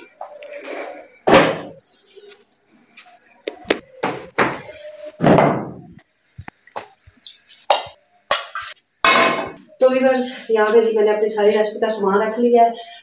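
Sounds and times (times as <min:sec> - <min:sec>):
objects knocking and thudding: 0:03.5 - 0:06.0.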